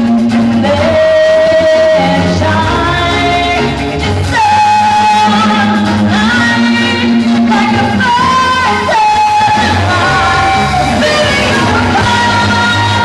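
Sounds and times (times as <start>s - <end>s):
bass guitar: 0.0s - 13.0s
drums: 0.0s - 13.0s
electric guitar: 0.0s - 13.0s
women singing: 0.6s - 13.0s.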